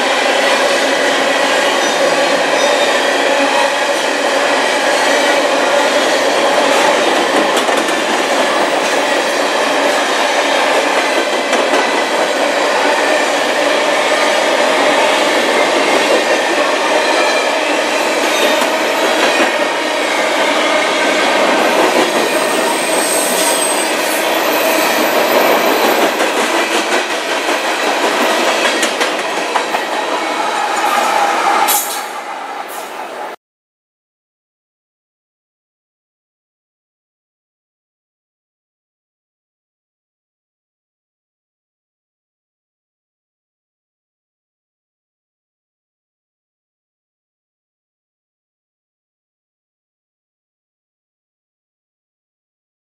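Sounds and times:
freight train wheels rumbling: 0:00.0 - 0:33.3
high wheel squeals: 0:21.8 - 0:25.9.

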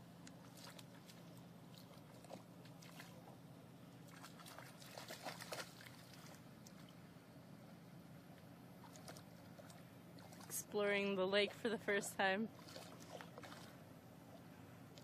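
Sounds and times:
faint steady hum: 0:00.0 - 0:15.0
dog splashing in water: 0:00.4 - 0:03.4, 0:04.0 - 0:06.4, 0:12.5 - 0:13.8.

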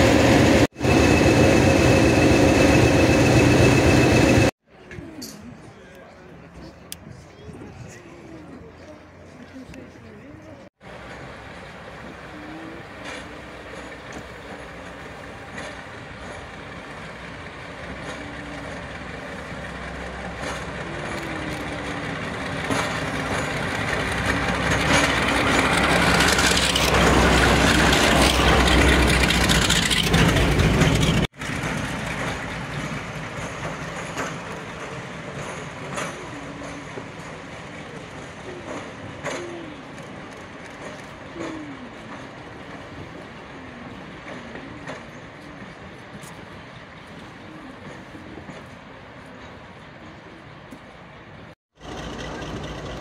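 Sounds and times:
diesel locomotive engine: 0:00.0 - 0:53.0.

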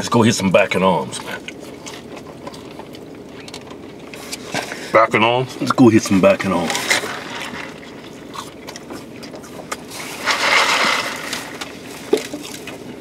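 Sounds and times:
slurping through a straw: 0:06.4 - 0:12.9.

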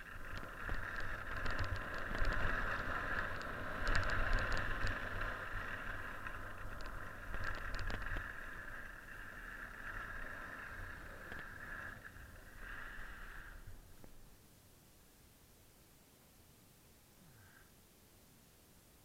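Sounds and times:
skis scraping over snow: 0:00.0 - 0:14.3
wind rumble on microphone: 0:00.0 - 0:14.3.

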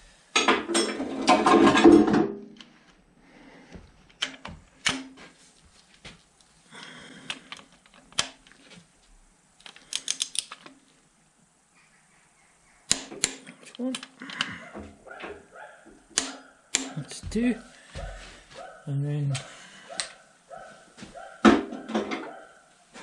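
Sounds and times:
hand tools clicking on metal: 0:09.6 - 0:10.8, 0:12.9 - 0:14.5, 0:16.1 - 0:17.2.

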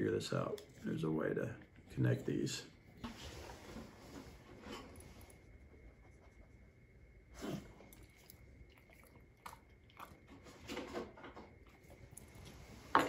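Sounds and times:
dog chewing bone: 0:07.9 - 0:12.4.

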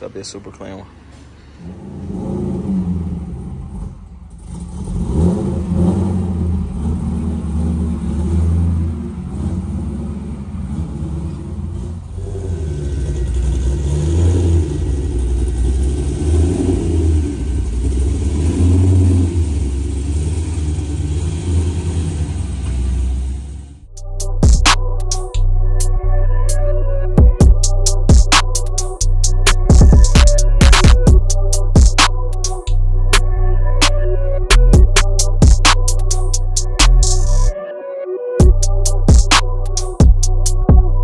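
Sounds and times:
car engine rumbling: 0:00.0 - 0:37.5, 0:38.4 - 0:41.0.

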